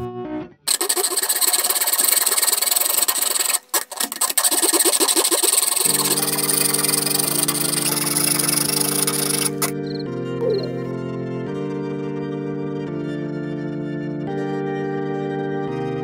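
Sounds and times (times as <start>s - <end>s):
hacksaw rasping: 0.7s - 9.8s
background music chord: 9.7s - 16.0s.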